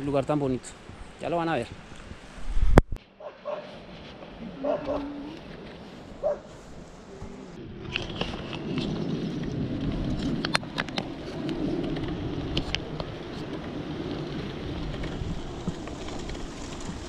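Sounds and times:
bike tyres rumbling on road: 0.0 - 17.0
wind on microphone: 0.0 - 17.0
bike clicks and rattles: 7.8 - 17.0.

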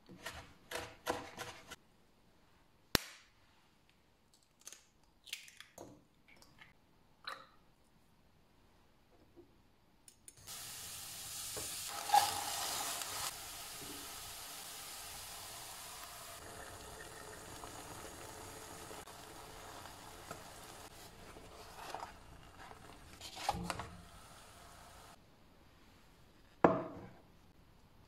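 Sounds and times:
food sizzling in a frying pan: 10.4 - 21.2, 23.4 - 25.2
wooden spatula stirring: 20.3 - 23.8.

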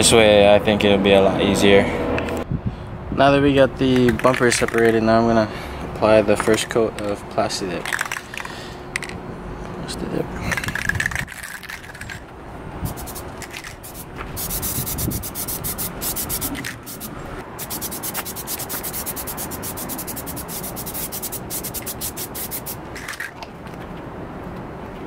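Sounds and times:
aerosol spray can hissing: 12.9 - 22.8.

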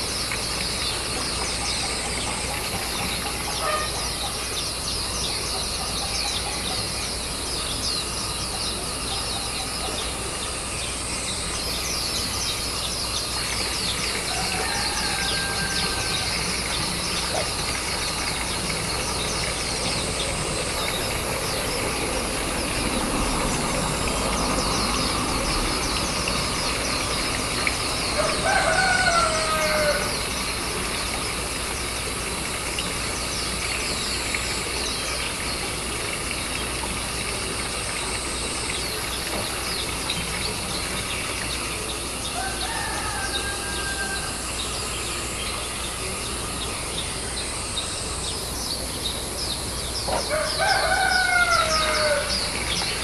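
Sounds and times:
distant rooster crowing: 14.0 - 17.5, 28.0 - 30.5, 42.2 - 44.8, 50.1 - 53.0.

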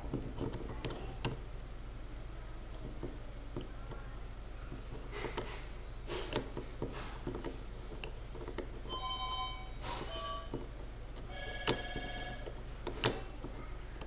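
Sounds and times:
short ringing tones: 8.9 - 10.5.

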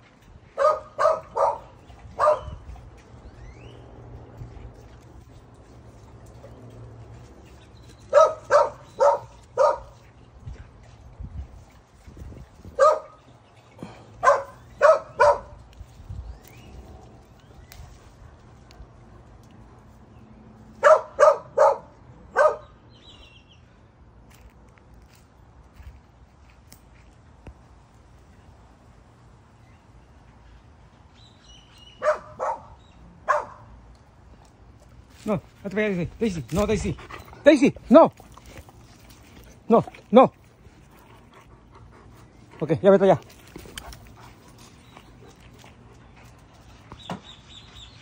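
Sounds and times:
dog barking: 0.6 - 2.6, 8.1 - 10.0, 12.8 - 13.2, 14.2 - 15.6, 20.8 - 22.7, 32.0 - 33.7.

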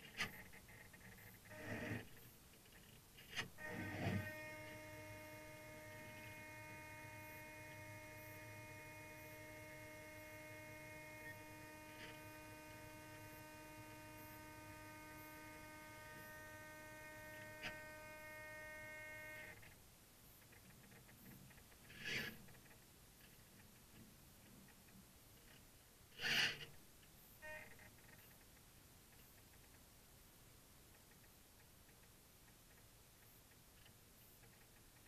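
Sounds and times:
small electric motor whining: 0.1 - 2.4, 3.2 - 19.8.

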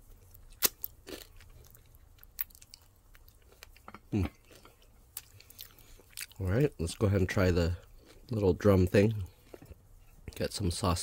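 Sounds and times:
chewing crispy chicken wings: 0.1 - 7.0.

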